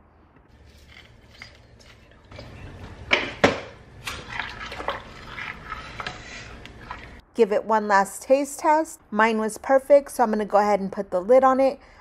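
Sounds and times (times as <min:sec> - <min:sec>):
spoon swishing in sauce: 0:04.1 - 0:07.2.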